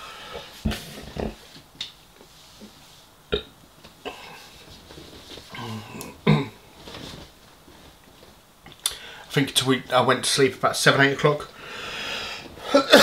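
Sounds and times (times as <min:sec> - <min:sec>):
man burping: 0:03.3 - 0:04.4, 0:05.5 - 0:06.6, 0:12.6 - 0:13.0.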